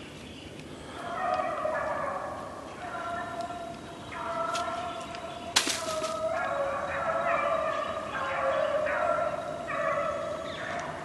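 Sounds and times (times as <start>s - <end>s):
hounds baying: 1.0s - 3.4s, 5.9s - 11.0s.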